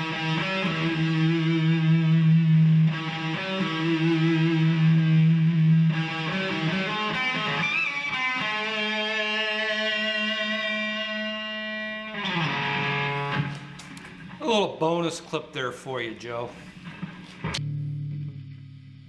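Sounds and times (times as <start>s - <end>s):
electric guitar sustained notes: 0.0s - 13.6s, 17.4s - 19.0s.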